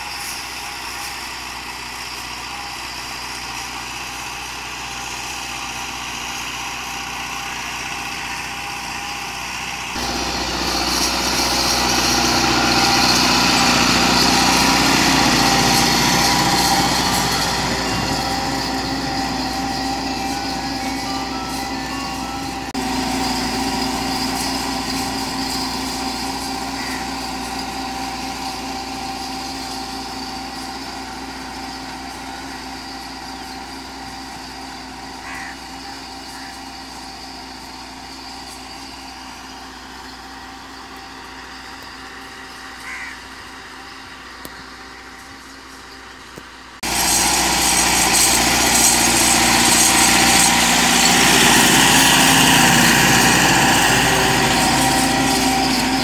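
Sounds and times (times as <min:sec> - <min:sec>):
tractor diesel engine running: 0:00.0 - 0:56.0
short bird calls: 0:35.2 - 0:36.6, 0:42.5 - 0:45.2.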